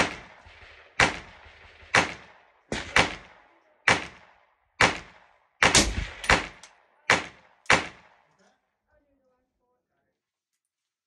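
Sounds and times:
gunshots with echo: 0.0s - 8.3s.

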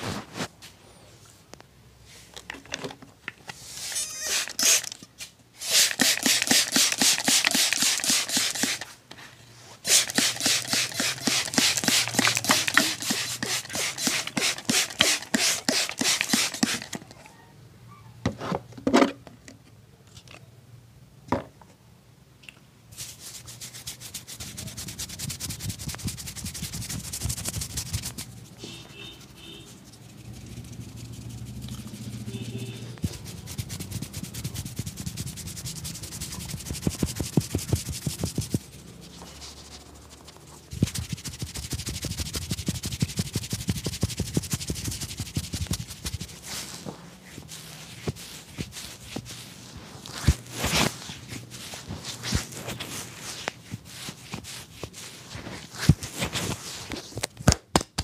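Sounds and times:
spray bottle hissing: 3.8s - 5.0s, 5.6s - 8.9s, 9.8s - 17.0s
hands scrubbing wet hair: 5.6s - 9.0s, 9.8s - 17.1s, 23.0s - 56.6s.

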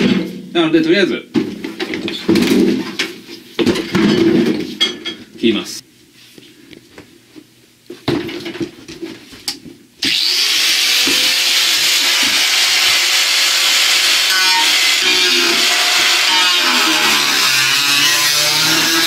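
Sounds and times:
electric angle grinder running: 10.0s - 19.0s.

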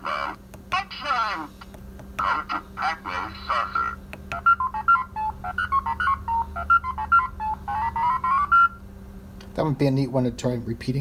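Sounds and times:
electronic beeps: 3.2s - 8.8s.

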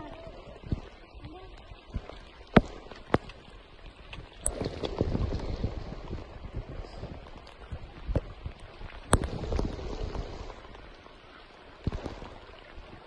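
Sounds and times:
heavy rain on water: 0.0s - 3.6s, 4.4s - 13.0s.

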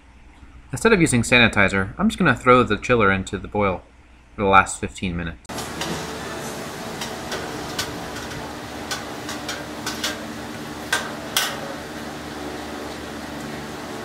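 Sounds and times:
burner rushing hum: 5.5s - 14.0s
metal spoon stirring in kettle: 5.6s - 12.0s.

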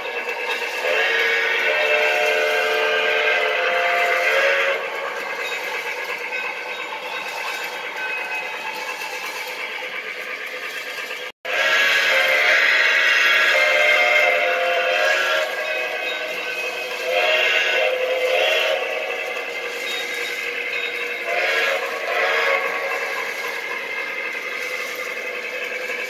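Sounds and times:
toy train running: 0.0s - 26.0s
toy train steam whistle: 0.0s - 26.0s.

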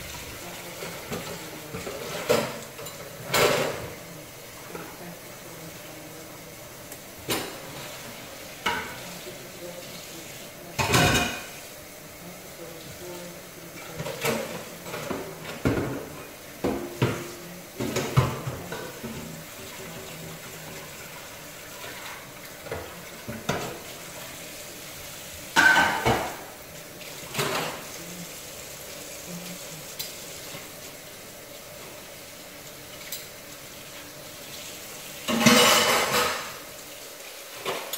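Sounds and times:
pots and utensils clattering: 0.0s - 5.1s, 7.2s - 9.8s, 10.6s - 11.7s, 13.7s - 24.4s, 25.5s - 28.3s, 32.9s - 36.8s, 37.5s - 37.9s.

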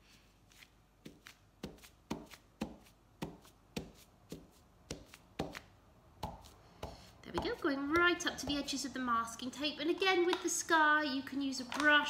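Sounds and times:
potato dabbing on fabric: 0.0s - 9.4s.

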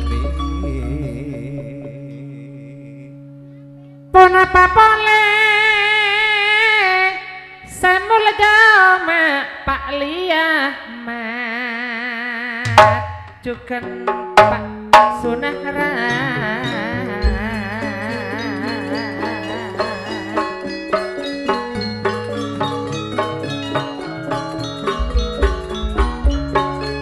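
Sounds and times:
gamelan-style music: 0.0s - 2.3s, 12.7s - 27.0s
lead melody with vibrato: 0.0s - 8.3s, 12.7s - 27.0s
sharp drum strokes: 14.1s - 15.4s.

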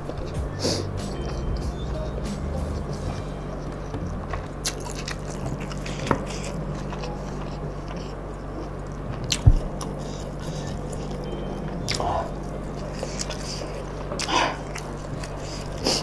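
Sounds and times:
person chewing and biting: 0.0s - 16.0s
steady low hum: 0.0s - 16.0s.

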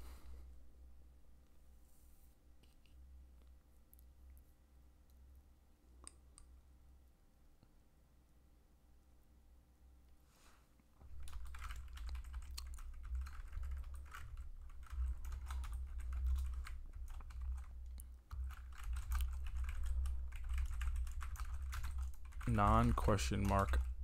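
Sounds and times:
typing on a keyboard: 11.0s - 24.0s.

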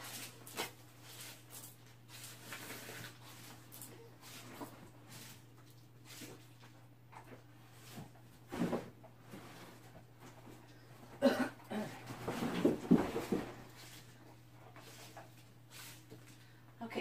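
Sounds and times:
person coughing: 11.2s - 12.0s.

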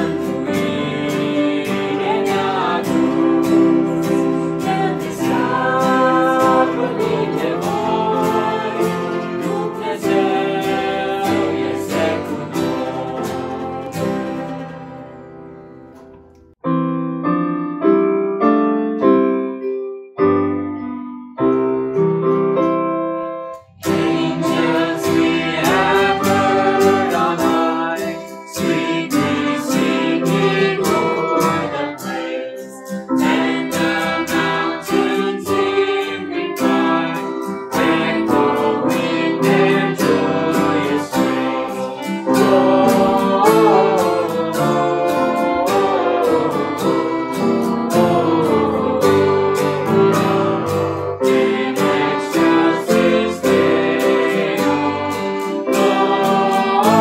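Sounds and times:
group singing: 0.0s - 15.3s, 23.6s - 57.0s
acoustic guitars: 0.0s - 16.6s, 21.5s - 57.0s
electric keyboard: 0.0s - 57.0s
fiddle: 23.9s - 32.5s, 33.3s - 57.0s.

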